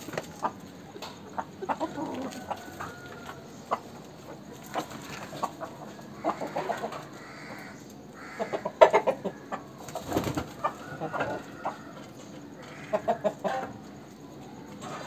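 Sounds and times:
roosters clucking: 0.0s - 15.0s.

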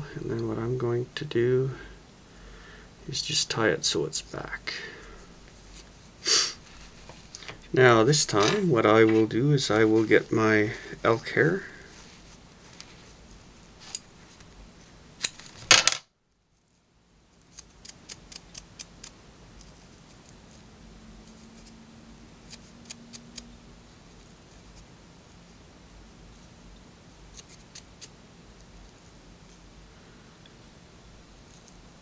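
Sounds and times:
scissors snipping hair: 17.5s - 19.7s, 22.5s - 23.5s, 27.3s - 28.1s.

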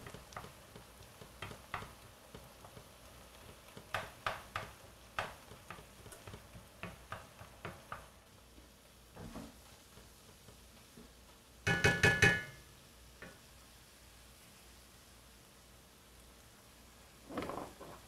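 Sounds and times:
wooden spoon scraping a skillet: 0.0s - 11.4s, 17.2s - 18.0s
meat sizzling: 0.0s - 18.0s.

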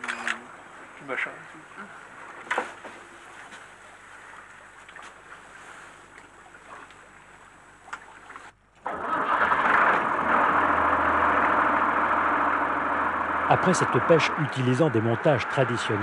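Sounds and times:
boat engine running: 8.9s - 16.0s.

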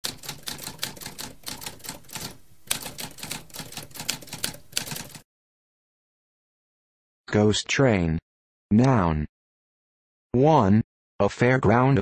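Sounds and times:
typewriter keys clacking: 0.0s - 5.2s.

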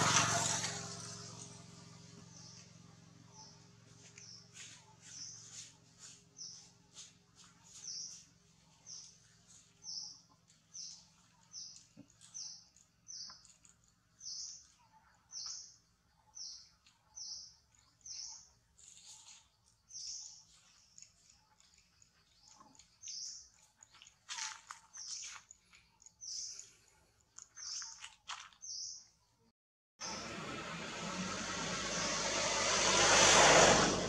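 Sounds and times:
bird chirping: 2.2s - 24.1s, 24.9s - 29.3s.

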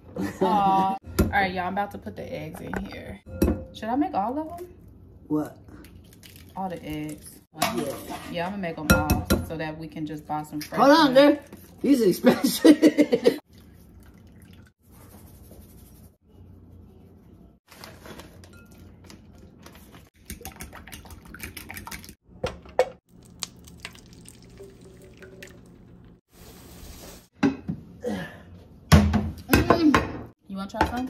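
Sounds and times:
liquid sounds: 5.6s - 7.5s, 13.4s - 14.8s, 23.1s - 26.2s.

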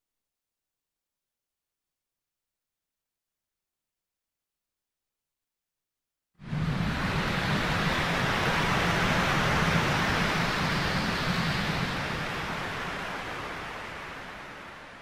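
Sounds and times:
steady rushing static noise: 6.5s - 15.0s.

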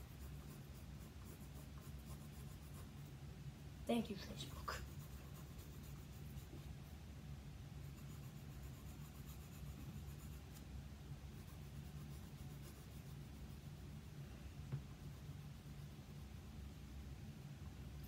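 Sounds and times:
pencil scratching on paper: 0.0s - 3.1s, 4.2s - 7.0s, 7.8s - 10.6s, 11.4s - 13.8s
steady low hum: 0.0s - 18.0s.

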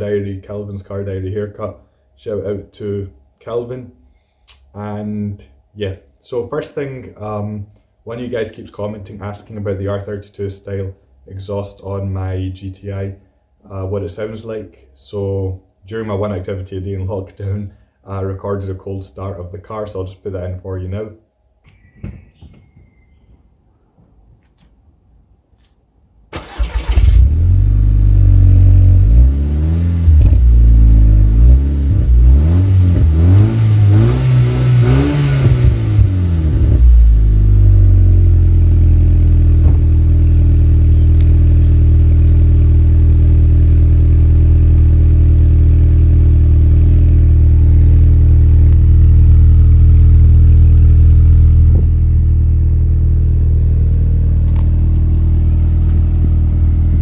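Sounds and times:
starter motor cranking: 26.4s - 27.3s
car engine revving and idling: 26.4s - 57.0s.

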